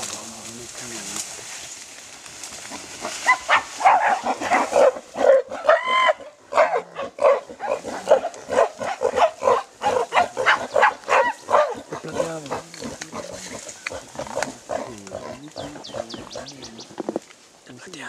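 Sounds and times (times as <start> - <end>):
gorillas calling: 2.6 - 17.2.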